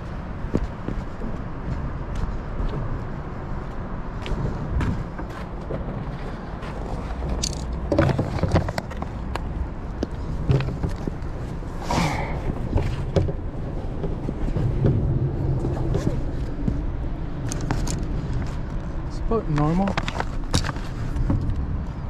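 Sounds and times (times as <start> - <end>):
steady low rumble: 0.0 - 22.0
footsteps scuffing on rock: 0.4 - 7.6.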